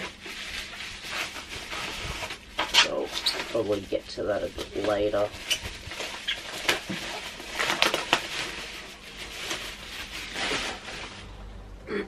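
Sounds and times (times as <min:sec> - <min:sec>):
bubble wrap crinkling: 0:00.0 - 0:11.5
sharp crackles: 0:02.7 - 0:11.2.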